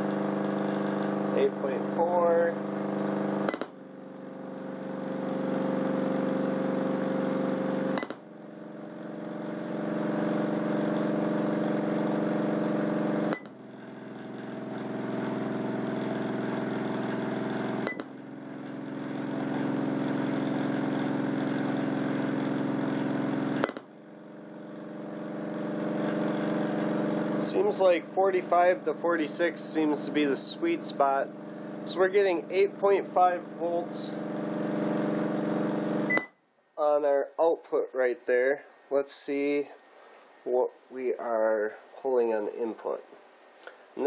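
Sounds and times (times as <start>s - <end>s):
subwoofer bass tone hum: 0.0s - 39.8s
sharp clicks: 3.5s - 3.8s, 8.0s - 8.2s.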